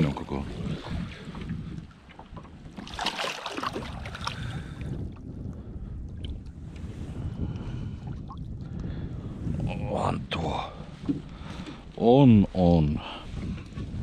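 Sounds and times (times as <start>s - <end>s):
wind rumble on microphone: 0.0s - 14.0s
fish thrashing and splashing: 2.7s - 4.5s.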